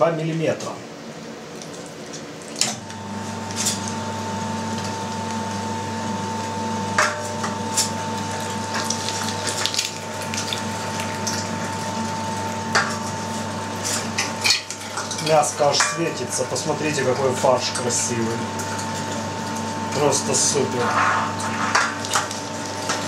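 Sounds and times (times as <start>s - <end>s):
electric meat grinder humming: 2.3s - 23.0s.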